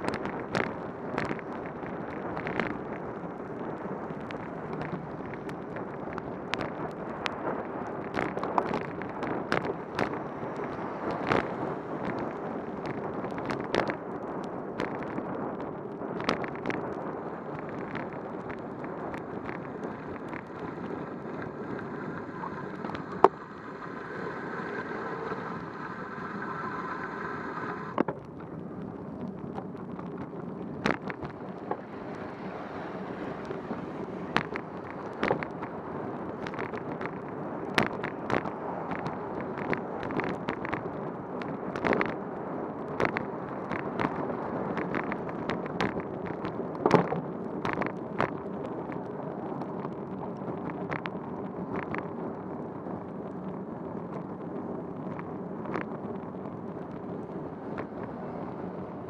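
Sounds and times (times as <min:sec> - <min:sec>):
wet road noise: 0:00.0 - 0:59.0
wind rush: 0:00.0 - 0:59.0
sharp ticks and knocks: 0:29.2 - 0:31.9, 0:34.3 - 0:42.2, 0:42.9 - 0:48.4.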